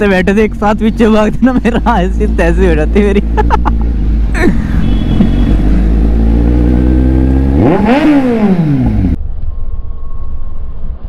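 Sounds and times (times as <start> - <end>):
motorcycle engine revving: 2.2 - 9.2.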